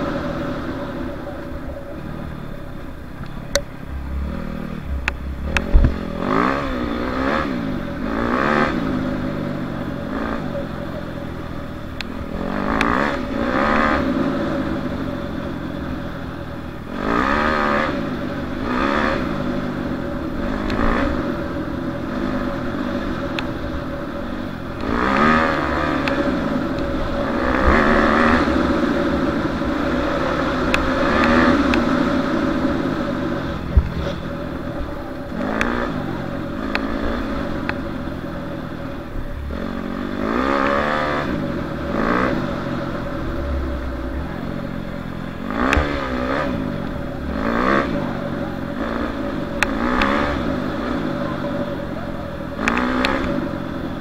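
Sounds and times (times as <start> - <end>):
dirt bike engine revving: 0.0 - 54.0
sharp clicks: 5.0 - 6.0.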